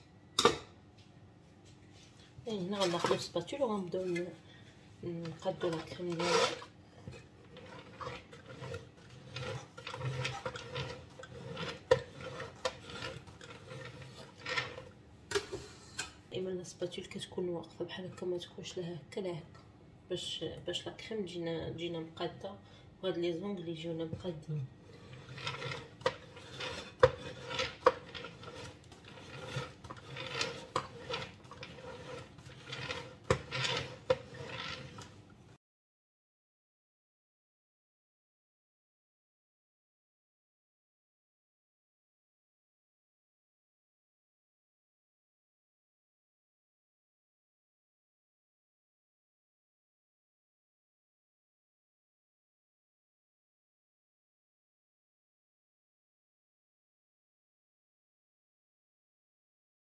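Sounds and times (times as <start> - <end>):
cake scraper rasping on cream: 5.2 - 15.0, 24.2 - 35.2.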